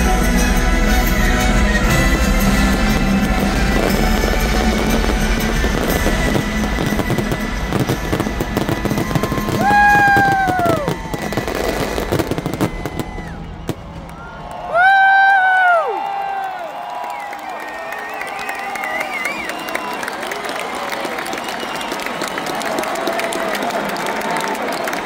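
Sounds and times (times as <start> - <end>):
loud music from loudspeakers: 0.0 - 10.1
fireworks bursting and crackling: 0.0 - 14.5.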